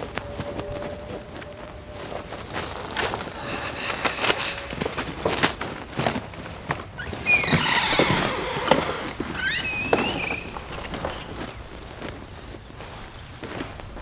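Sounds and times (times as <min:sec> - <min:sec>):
footsteps: 0:00.0 - 0:14.0
squeaky door creaking: 0:02.9 - 0:05.6, 0:07.0 - 0:11.7.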